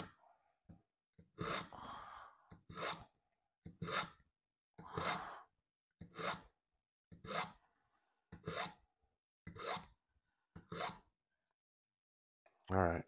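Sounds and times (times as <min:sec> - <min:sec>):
knife scraping through sharpener: 0:01.4 - 0:01.7, 0:02.7 - 0:03.1, 0:03.7 - 0:04.2, 0:04.9 - 0:05.2, 0:06.0 - 0:06.5, 0:07.2 - 0:07.6, 0:08.4 - 0:08.8, 0:09.5 - 0:09.9, 0:10.7 - 0:11.0.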